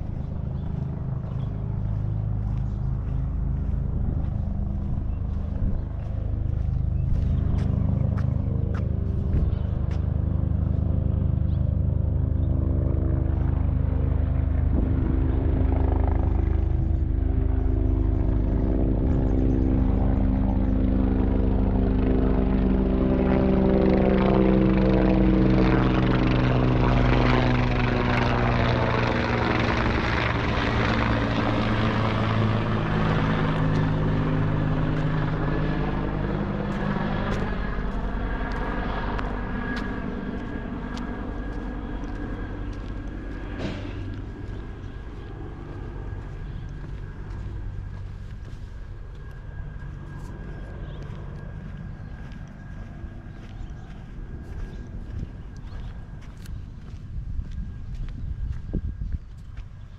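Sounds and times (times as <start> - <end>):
aircraft engine droning overhead: 0.0 - 59.9.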